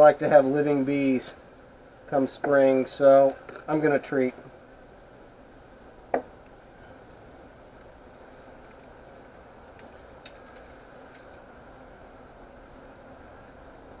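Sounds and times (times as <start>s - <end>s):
metal tools clinking on wood: 7.8s - 10.9s.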